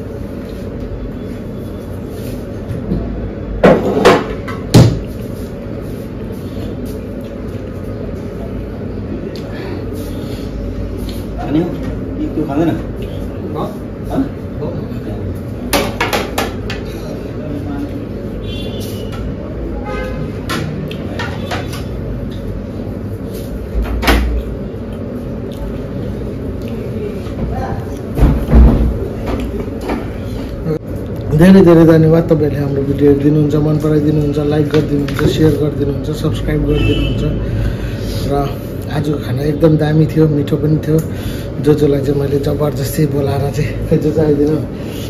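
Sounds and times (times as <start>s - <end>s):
steady background hum: 0.0s - 45.0s.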